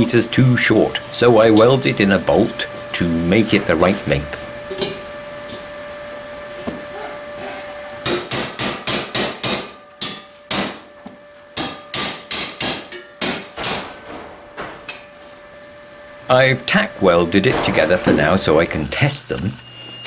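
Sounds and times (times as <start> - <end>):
hammer striking steel ring: 4.7 - 5.0, 11.6 - 14.2.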